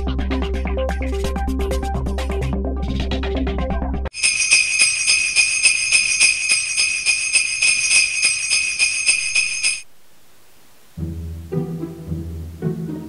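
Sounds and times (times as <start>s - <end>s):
sleigh bells shaking: 4.1s - 9.9s.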